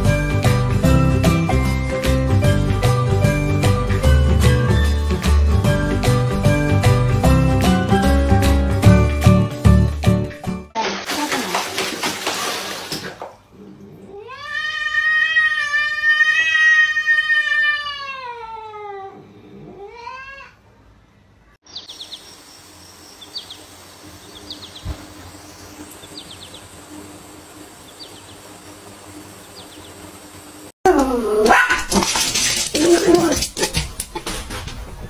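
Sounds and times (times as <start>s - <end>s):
pet yowling: 14.1s - 20.6s, 30.9s - 32.0s.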